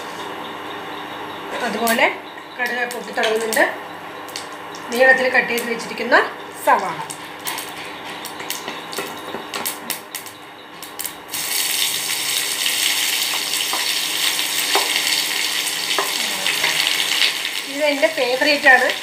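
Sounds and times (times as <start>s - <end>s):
seeds popping in hot oil: 2.6s - 5.8s, 6.7s - 19.0s
onions sizzling in pan: 9.6s - 19.0s.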